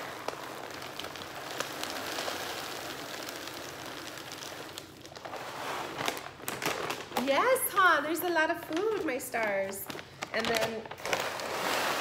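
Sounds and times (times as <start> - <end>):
dry pet food pouring into container: 0.0 - 7.4, 9.8 - 12.0.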